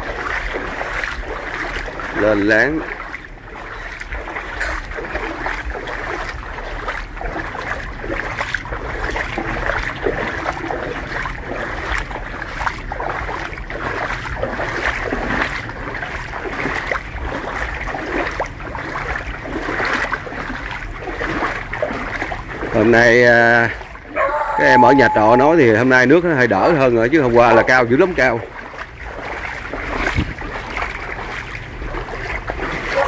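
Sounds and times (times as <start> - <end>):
footsteps wading through water: 0.0 - 33.0.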